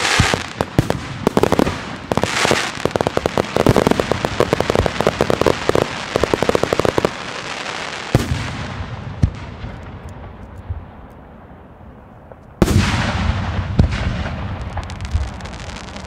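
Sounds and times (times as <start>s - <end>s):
fireworks loud bangs: 0.0s - 10.4s, 12.2s - 16.0s
fireworks sharp pops: 0.0s - 11.2s.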